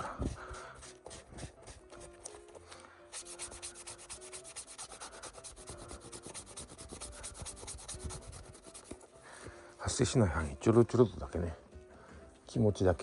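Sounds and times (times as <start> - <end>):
rubbing strokes on leather: 0.0 - 2.4, 3.1 - 9.1.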